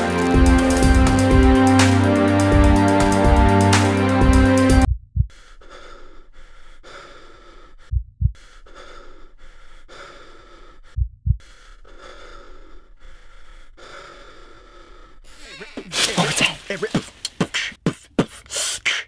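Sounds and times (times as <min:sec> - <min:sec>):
deep heartbeat thumps: 0:04.2 - 0:05.4, 0:07.9 - 0:08.5, 0:11.0 - 0:11.6
heavy rapid breathing: 0:05.2 - 0:19.0.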